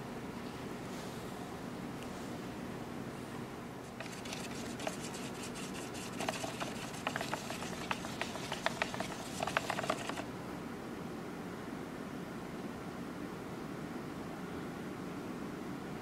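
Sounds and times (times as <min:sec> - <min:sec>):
steady low hum: 0:00.0 - 0:14.2
stir stick scraping plastic cup: 0:03.8 - 0:10.2.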